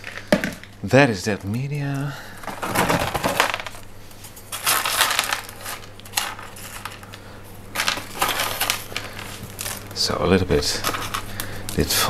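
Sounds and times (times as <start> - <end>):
stones clattering on plastic: 0.0 - 0.8, 2.4 - 3.8, 4.5 - 7.1, 7.8 - 10.0.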